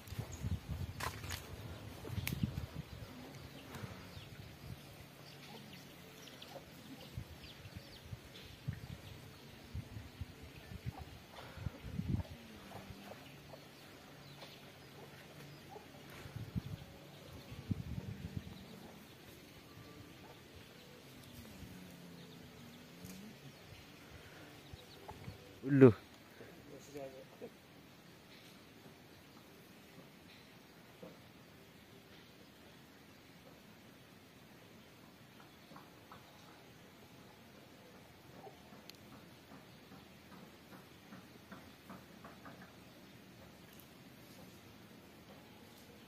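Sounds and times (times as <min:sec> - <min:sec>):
footsteps on dry forest floor: 0:00.0 - 0:02.7
twig snapping: 0:02.2 - 0:02.4.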